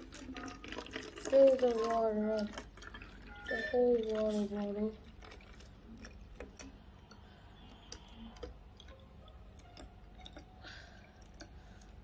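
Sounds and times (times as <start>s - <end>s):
water trickling into bottle: 0.0s - 12.0s
small drip ticks: 5.0s - 12.0s.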